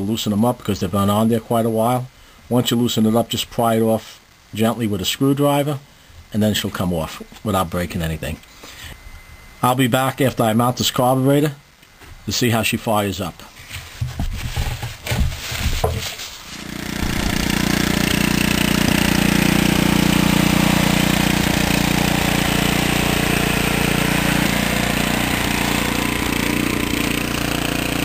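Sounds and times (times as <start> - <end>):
single-cylinder engine running steadily: 16.6 - 28.0.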